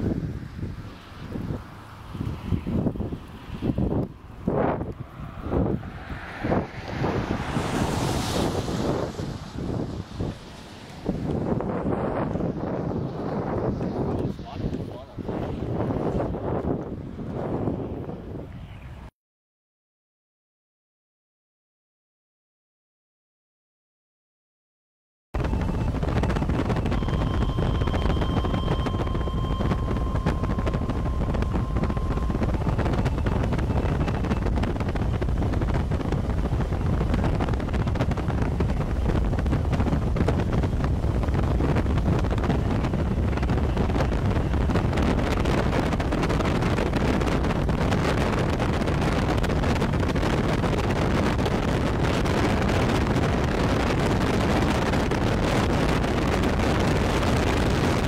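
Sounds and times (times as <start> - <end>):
vehicle rumble: 0.0 - 19.1, 25.4 - 58.0
wind buffeting microphone: 0.0 - 19.1, 25.4 - 58.0
faint steady tone: 25.4 - 34.6.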